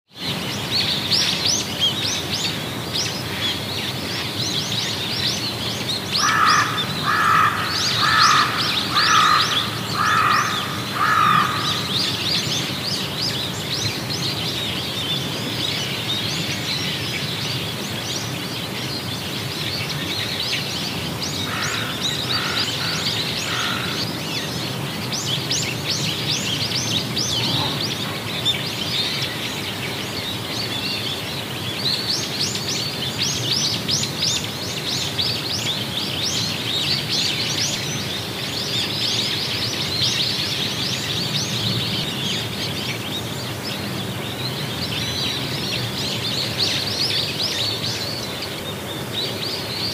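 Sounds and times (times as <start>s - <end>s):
small birds chirping: 0.3s - 49.9s
low bird call: 6.2s - 12.8s.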